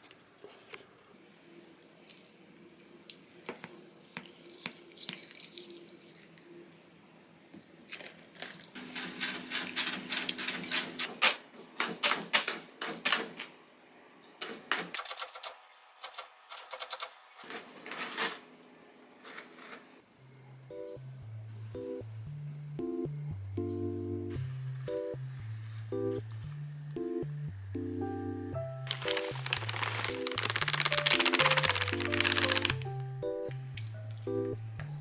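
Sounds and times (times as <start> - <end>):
cat scratching in litter: 8.8 - 12.1, 28.9 - 33.0.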